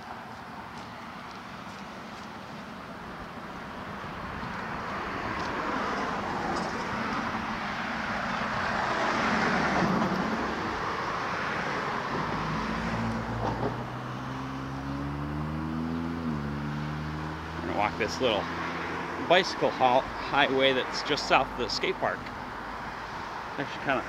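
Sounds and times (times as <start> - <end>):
car driving past: 3.8 - 20.7.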